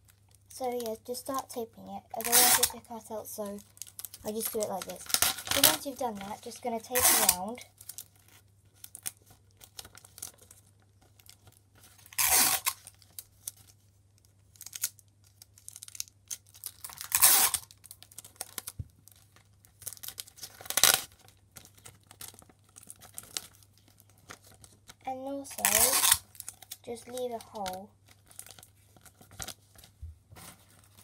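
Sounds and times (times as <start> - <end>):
paper and tape crinkling: 0.0 - 31.0
tape ripping off roll: 2.2 - 2.8, 6.9 - 7.5, 12.0 - 12.8, 16.7 - 17.7, 19.8 - 21.2, 25.6 - 26.8.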